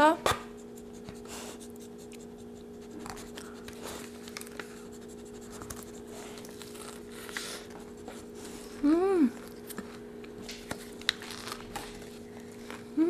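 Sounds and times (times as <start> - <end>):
steady low hum: 0.0 - 13.0
foil scratching and rustling: 10.8 - 12.9.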